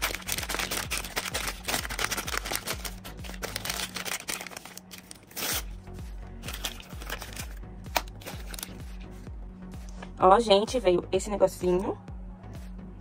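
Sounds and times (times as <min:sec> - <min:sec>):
foil packet crinkling and tearing: 0:00.0 - 0:05.7, 0:06.4 - 0:08.8
background music with low beat: 0:00.0 - 0:13.0.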